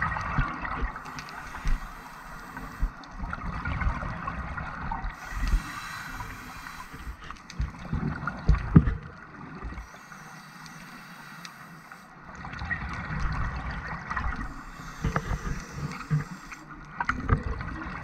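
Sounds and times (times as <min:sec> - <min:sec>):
scuba regulator breathing underwater: 0:00.9 - 0:03.2, 0:05.1 - 0:07.6, 0:09.8 - 0:12.3, 0:14.3 - 0:17.1
gurgling exhaled bubbles: 0:12.4 - 0:18.0.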